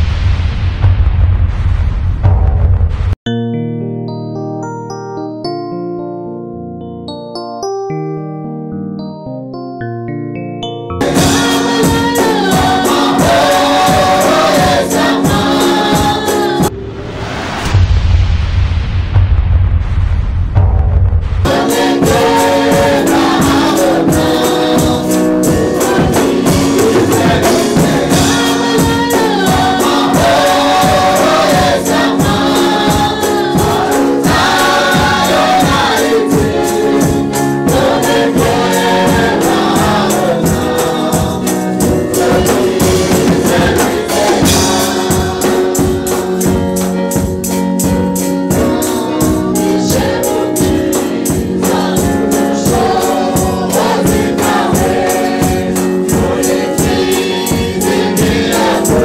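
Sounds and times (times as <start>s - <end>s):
tambourine shaking: 11.0s - 16.6s
steady beat: 11.0s - 16.8s, 19.2s - 59.0s
choir singing gospel: 11.0s - 17.0s, 21.5s - 59.0s.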